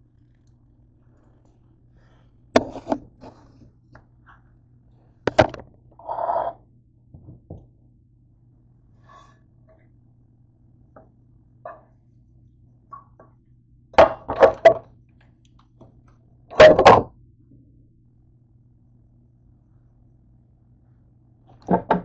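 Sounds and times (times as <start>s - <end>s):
faint low hum: 0.0s - 22.0s.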